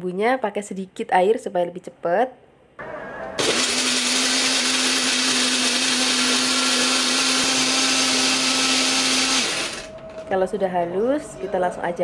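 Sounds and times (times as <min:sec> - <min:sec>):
blender motor humming: 0:03.4 - 0:09.9.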